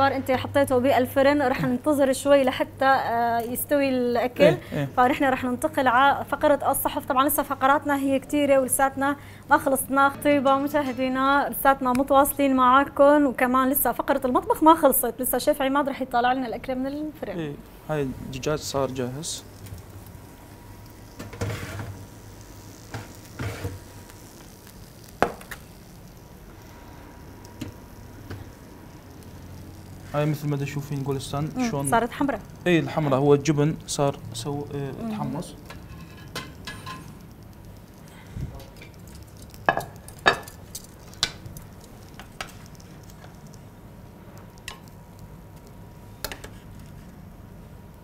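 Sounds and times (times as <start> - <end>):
metal tray scraping: 21.3 - 22.0.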